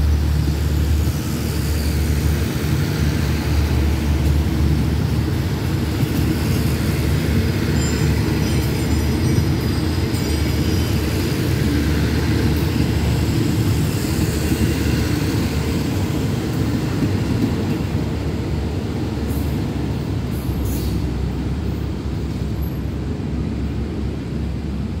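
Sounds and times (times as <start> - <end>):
train coaches rumbling on track: 0.0 - 25.0.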